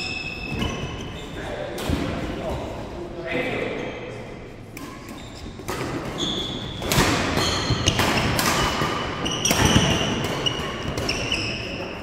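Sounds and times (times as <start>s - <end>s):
trainers squeaking on wooden floor: 0.0s - 1.6s
racket hitting shuttlecock: 4.7s - 11.5s.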